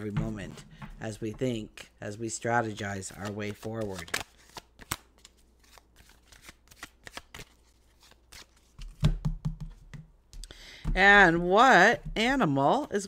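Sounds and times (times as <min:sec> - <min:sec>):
cards being shuffled: 0:02.7 - 0:09.8.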